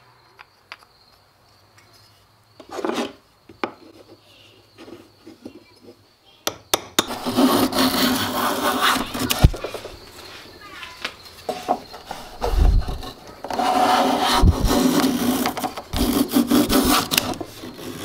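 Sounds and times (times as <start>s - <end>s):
hand plane shaving wood: 7.0s - 10.0s, 12.0s - 18.0s
plane blade scraping into wood: 7.0s - 10.0s, 11.5s - 18.0s.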